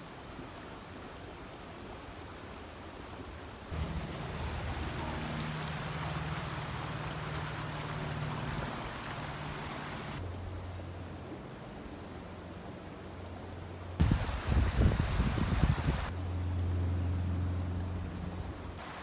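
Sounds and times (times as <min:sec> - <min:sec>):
stream rushing over rocks: 0:00.0 - 0:10.2, 0:14.0 - 0:16.1, 0:18.7 - 0:19.0.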